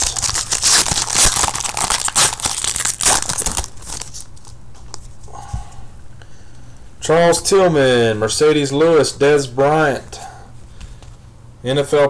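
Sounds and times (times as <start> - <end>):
plastic wrapper tearing and crinkling: 0.0 - 5.0
cards rustling: 0.0 - 5.2.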